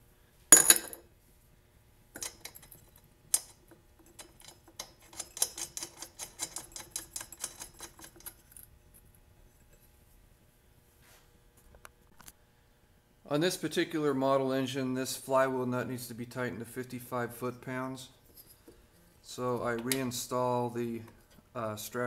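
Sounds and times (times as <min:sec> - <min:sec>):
rhythmic small metal clicks: 0:02.2 - 0:08.6.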